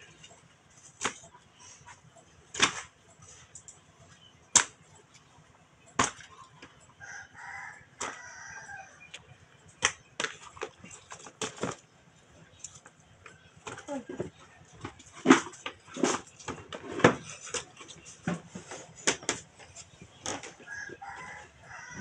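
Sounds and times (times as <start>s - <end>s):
rooster crowing: 7.0s - 9.1s, 20.6s - 22.0s.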